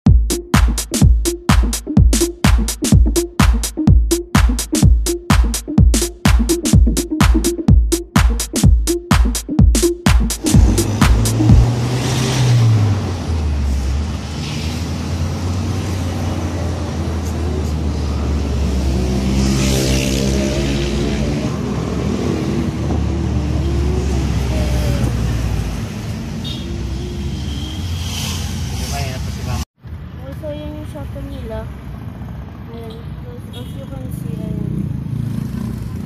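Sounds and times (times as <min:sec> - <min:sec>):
surrounding traffic: 0:00.0 - 0:36.0
car engine while driving: 0:10.4 - 0:29.6
road noise inside car: 0:10.4 - 0:33.4.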